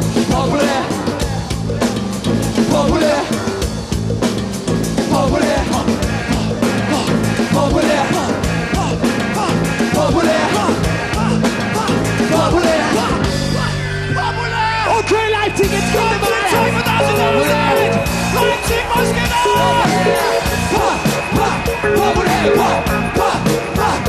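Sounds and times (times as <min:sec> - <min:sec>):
driving drum beat: 0:00.0 - 0:13.9, 0:14.9 - 0:24.0
live hip-hop band: 0:00.0 - 0:24.0
shouted vocals: 0:05.1 - 0:24.0.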